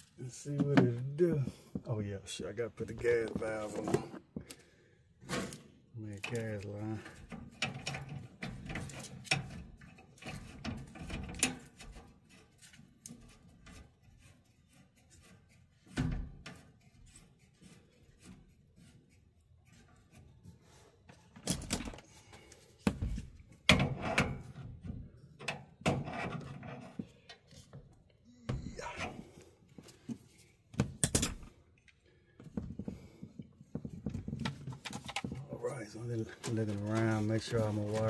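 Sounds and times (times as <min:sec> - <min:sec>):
metal fittings knocking and clicking: 0:07.2 - 0:12.0.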